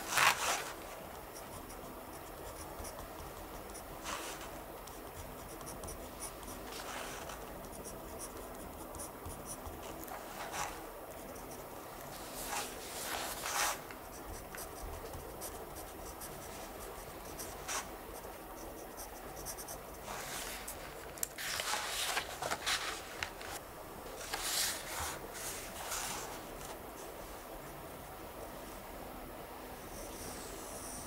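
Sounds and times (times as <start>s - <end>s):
pen scratching on paper: 0.0s - 11.7s, 12.4s - 20.8s.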